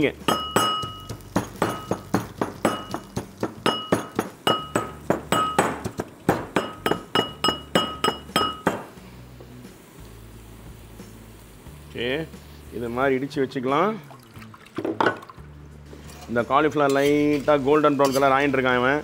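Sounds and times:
metallic ringing of bowl: 0.3 - 2.1
pestle pounding in brass mortar: 0.3 - 8.9.

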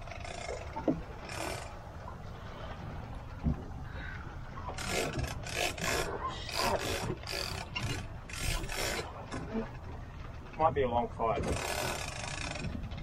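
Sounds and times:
fishing line rasping out: 1.2 - 1.8, 4.7 - 9.8, 11.5 - 12.7.

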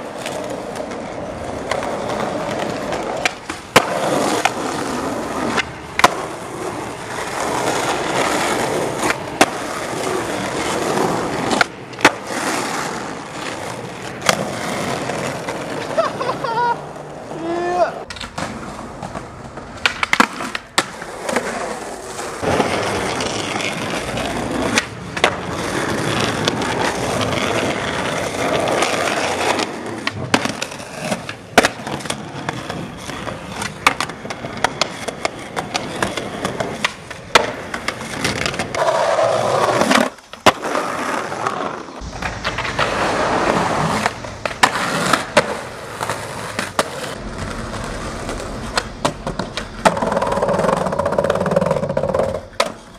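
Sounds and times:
skateboard popping and landing clacks: 0.0 - 17.4, 18.0 - 52.9
skateboard wheels rolling on concrete: 0.0 - 52.9.

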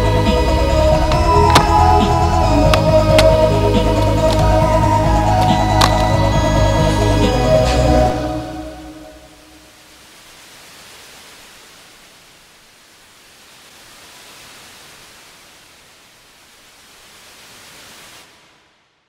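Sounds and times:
steady rushing hiss: 0.0 - 8.2, 9.1 - 19.0.

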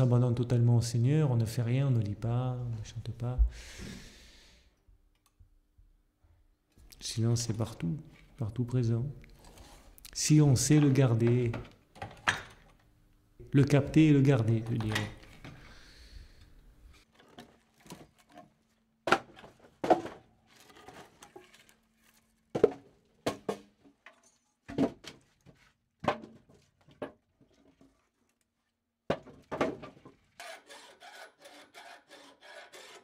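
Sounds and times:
hand file rasping: 30.4 - 33.0.

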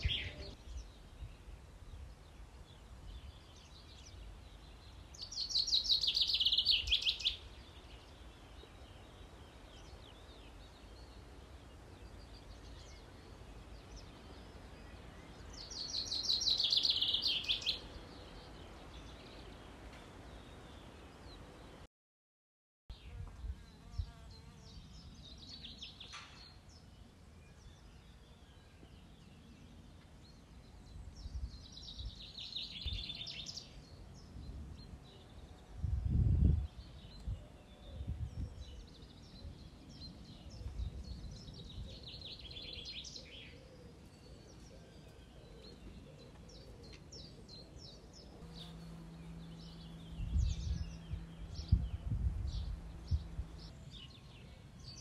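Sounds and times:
birds chirping: 0.0 - 21.9, 23.0 - 55.0
low steady noise: 43.9 - 55.0
low rumbles: 48.2 - 55.0.

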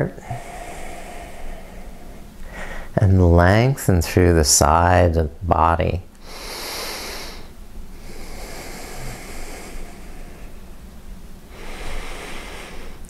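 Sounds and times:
person breathing close to microphone: 0.0 - 3.0, 6.2 - 10.7, 11.5 - 13.0
low room hum: 0.0 - 13.0.

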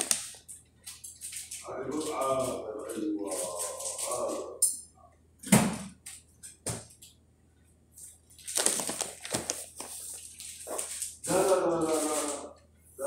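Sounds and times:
crinkly rustling: 8.3 - 12.5.

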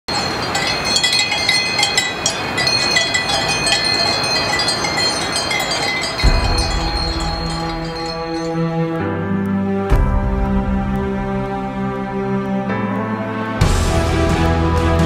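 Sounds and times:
small metal bells clinking: 0.1 - 8.7
music with low sustained note: 6.2 - 15.0.

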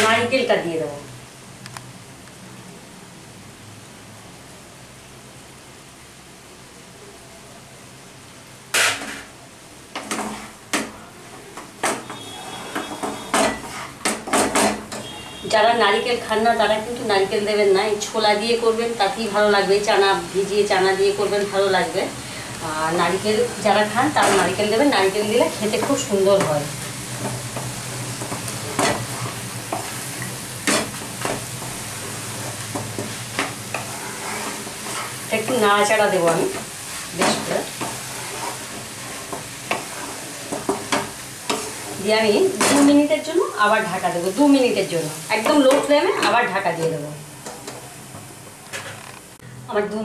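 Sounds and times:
food sizzling: 7.8 - 50.0
wooden spatula scraping a wok: 10.0 - 10.6, 11.8 - 15.4, 23.8 - 43.1.

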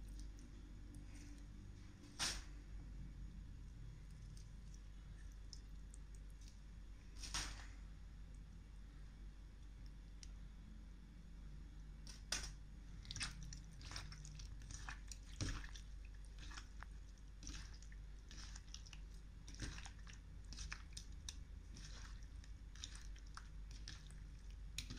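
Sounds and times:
wet squelches in water: 4.0 - 7.7, 12.1 - 24.9.

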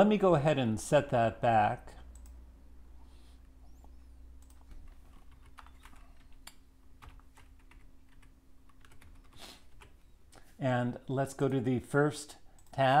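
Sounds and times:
faint low hum: 0.0 - 13.0
computer keyboard typing: 4.4 - 10.0.

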